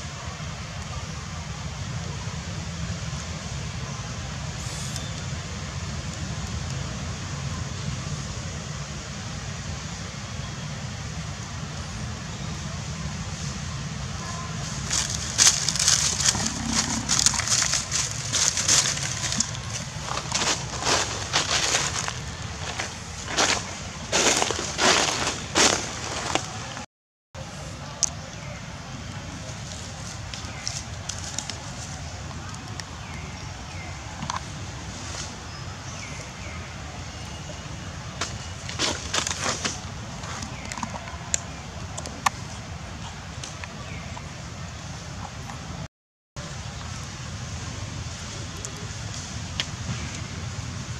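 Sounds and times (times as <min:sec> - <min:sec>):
low steady rumble: 0:05.2 - 0:24.1
dry leaves crackling and rustling: 0:13.5 - 0:26.8, 0:29.4 - 0:33.8, 0:38.2 - 0:40.6
low rumble: 0:14.8 - 0:22.6.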